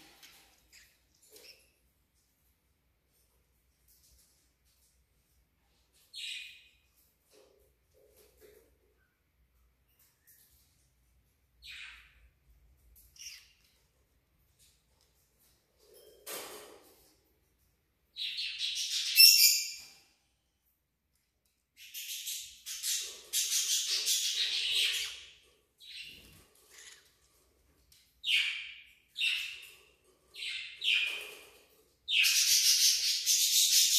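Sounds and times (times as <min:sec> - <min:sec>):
cockatiels chirping: 0:13.1 - 0:13.5, 0:21.8 - 0:27.2.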